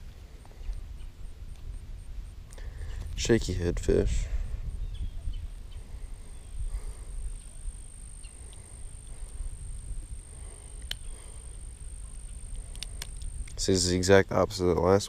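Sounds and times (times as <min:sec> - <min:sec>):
wind on microphone: 0:00.0 - 0:13.8
faint high-pitched whine: 0:00.0 - 0:15.0
faint clicks of fishing hook: 0:10.8 - 0:11.1, 0:12.1 - 0:13.6.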